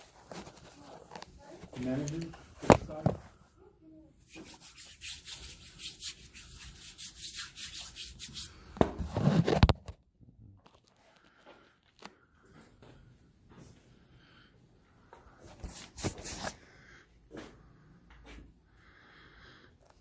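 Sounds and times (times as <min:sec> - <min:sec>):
rubbing against phone microphone: 0:04.2 - 0:09.8, 0:15.4 - 0:16.6.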